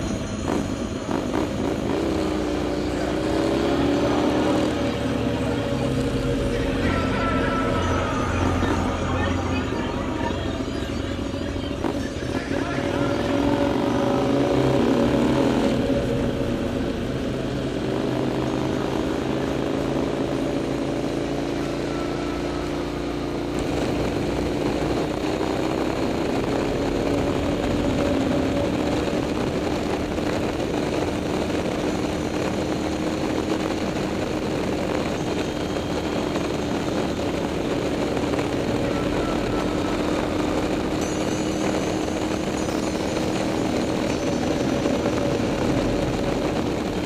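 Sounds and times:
motorcycle engine running: 0.0 - 47.0.

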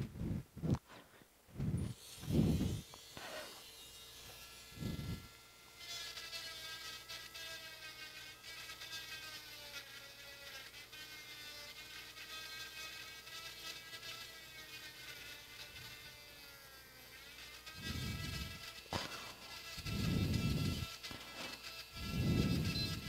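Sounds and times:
electric hand drill whining: 1.6 - 23.0.

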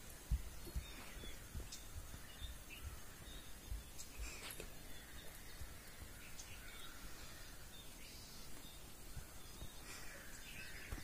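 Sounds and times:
soft low thuds: 0.0 - 7.0
bird chirps and calls: 0.0 - 11.0
steady outdoor hiss: 0.0 - 11.0.

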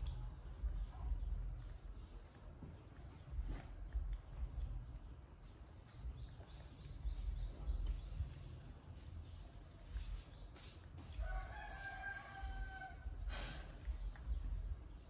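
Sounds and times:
low microphone rumble: 0.0 - 5.3, 12.5 - 15.0
faint rooster crowing: 11.0 - 13.2.

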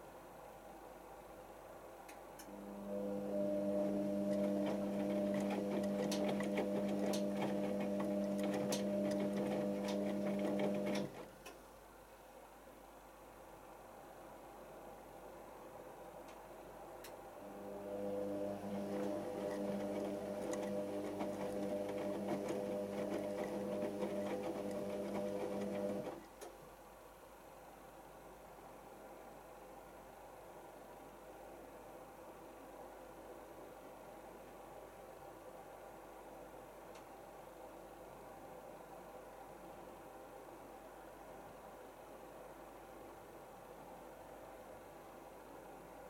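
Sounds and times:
washing machine motor humming: 2.6 - 11.2, 17.4 - 26.2.

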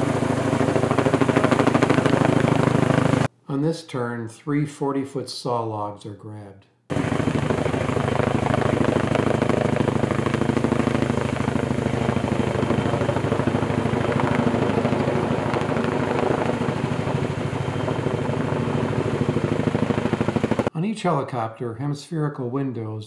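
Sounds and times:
helicopter engine drone: 0.0 - 3.3, 6.9 - 20.7
helicopter rotor blades beating: 0.0 - 3.3, 6.9 - 20.7.

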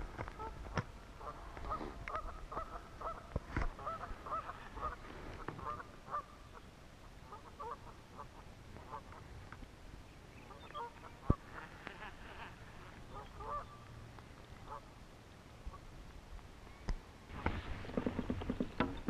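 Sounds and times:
waterfowl honking: 1.2 - 6.6, 7.2 - 9.2, 10.5 - 13.8, 14.6 - 14.9.

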